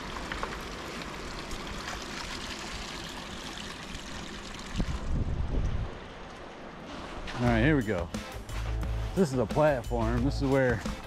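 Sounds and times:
running water: 0:00.0 - 0:07.9.

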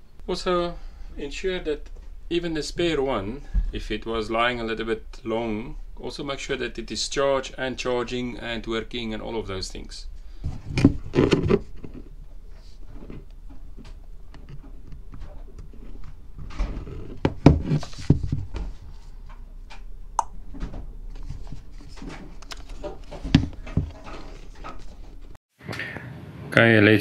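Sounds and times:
device handling clicks and knocks: 0:22.0 - 0:24.8.

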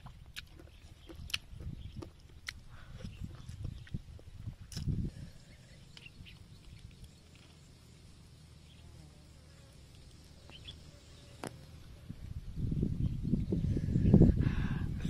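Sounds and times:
insect buzzing: 0:04.9 - 0:14.4.

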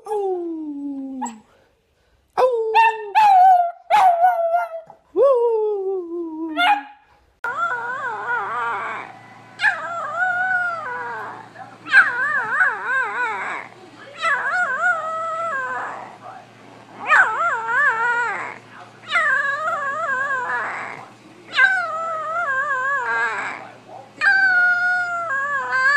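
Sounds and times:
dog barking: 0:02.8 - 0:04.8, 0:06.6 - 0:07.0
puppy howling: 0:07.4 - 0:16.2, 0:17.0 - 0:25.9
dog howling: 0:07.5 - 0:16.2, 0:17.0 - 0:25.9.

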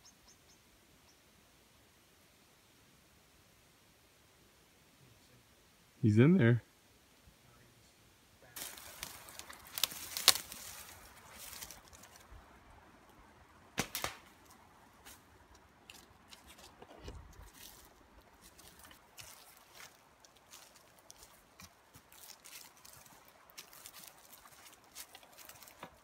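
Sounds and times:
rustling through undergrowth: 0:08.4 - 0:26.0
sharp twig snaps: 0:08.6 - 0:10.6, 0:13.8 - 0:14.3.

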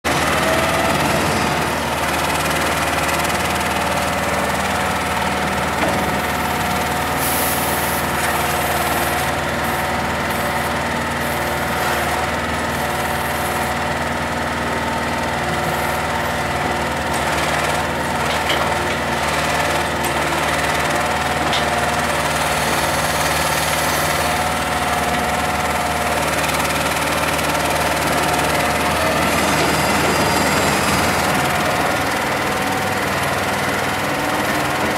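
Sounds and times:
diesel truck engine running: 0:00.1 - 0:34.9.

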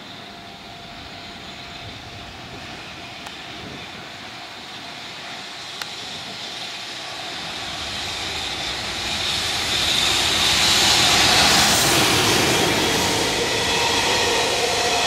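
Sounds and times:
electric locomotive passing: 0:05.8 - 0:15.0.

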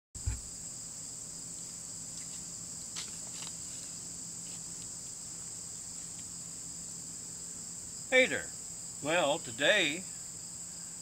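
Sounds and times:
low thump: 0:00.2 - 0:00.5
insect chorus drone: 0:00.2 - 0:11.0.

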